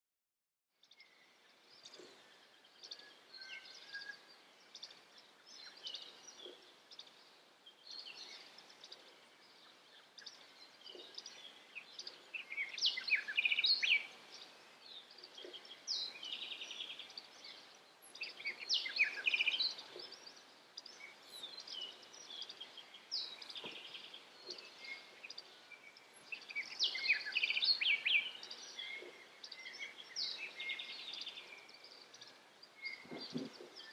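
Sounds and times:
forest birds chirping and trilling: 0.7 - 33.9.

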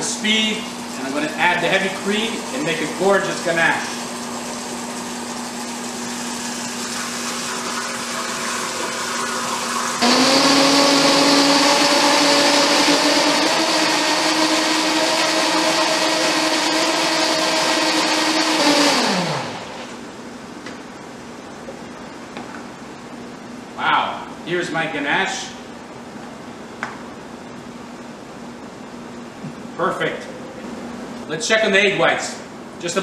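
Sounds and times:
blender running: 0.0 - 20.0
cream pouring: 1.8 - 16.4.

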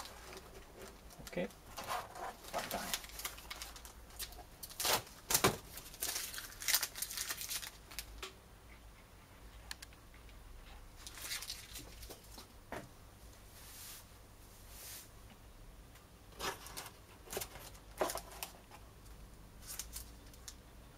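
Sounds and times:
plastic packaging crinkling: 0.0 - 8.2, 11.0 - 12.3, 19.6 - 20.6.

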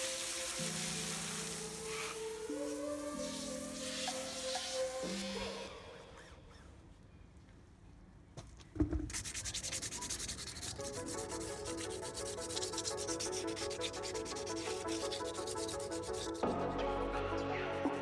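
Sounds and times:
background music: 0.0 - 6.2, 10.1 - 18.0
sandpaper scratching on metal: 9.1 - 16.6.

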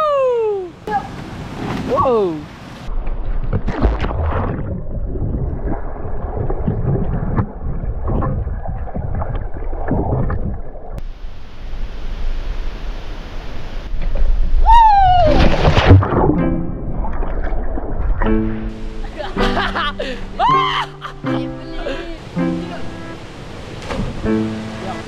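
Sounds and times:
rush of bubbling water: 1.3 - 12.9, 13.6 - 18.8
underwater churning rumble: 2.9 - 11.0, 15.2 - 19.1.

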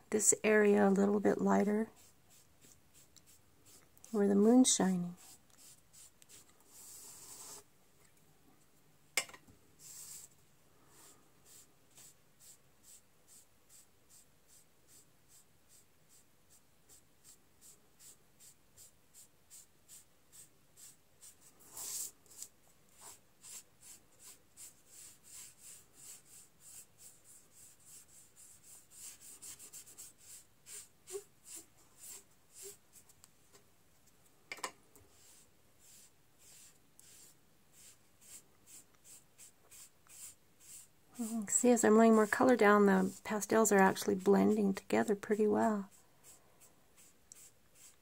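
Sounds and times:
sponge rubbing on paper: 5.2 - 7.7, 9.8 - 10.3, 10.9 - 33.0, 35.1 - 43.4, 45.8 - 48.0.

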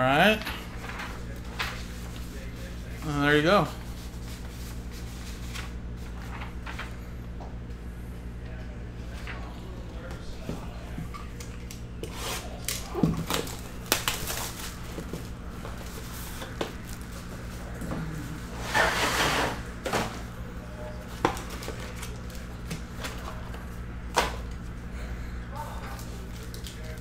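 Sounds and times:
steady low hum: 0.0 - 27.0
cardboard scraping: 18.5 - 19.7.

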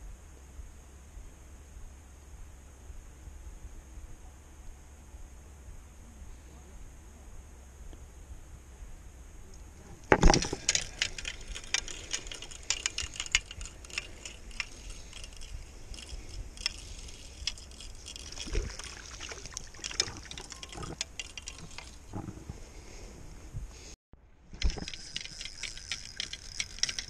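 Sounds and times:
fishing reel ticking: 10.2 - 22.2, 24.6 - 27.0.

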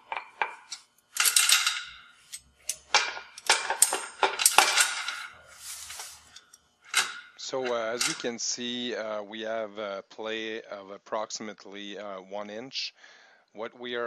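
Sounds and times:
chain tensioner clinking and rattling: 0.0 - 8.3.

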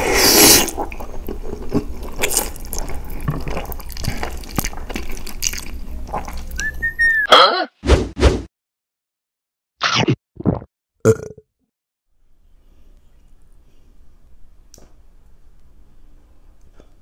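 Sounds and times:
slurping noodles: 0.0 - 1.0
whistling glide: 6.6 - 7.3.

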